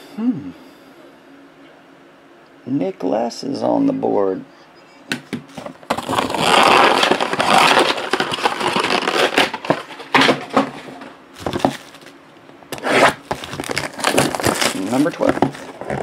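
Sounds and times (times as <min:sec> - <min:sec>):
cardboard packaging tearing: 0:05.6 - 0:12.1, 0:12.7 - 0:16.0.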